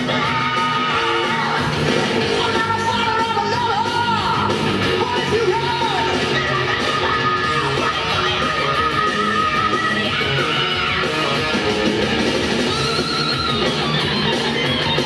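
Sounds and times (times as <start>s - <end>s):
rock band with singer yelling: 0.0s - 15.0s.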